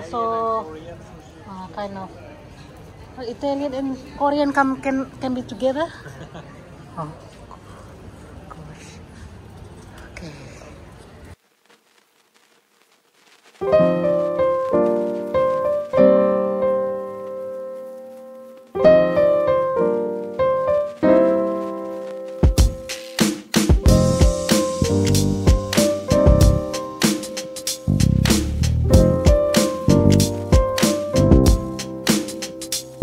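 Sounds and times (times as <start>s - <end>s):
piano chords ringing: 13.6s - 23.0s, 23.8s - 33.0s
drum-led music track: 21.0s - 33.0s.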